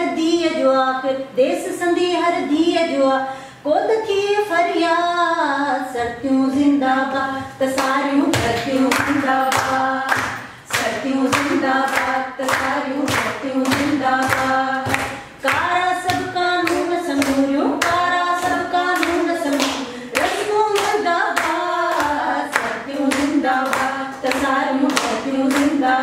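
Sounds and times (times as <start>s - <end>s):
woman singing unaccompanied: 0.0s - 26.0s
group clapping in time: 7.6s - 26.0s.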